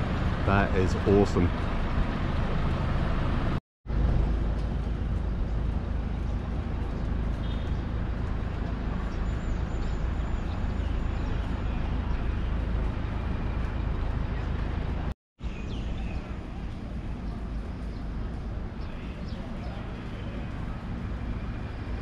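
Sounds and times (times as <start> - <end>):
low outdoor rumble: 0.0 - 22.0.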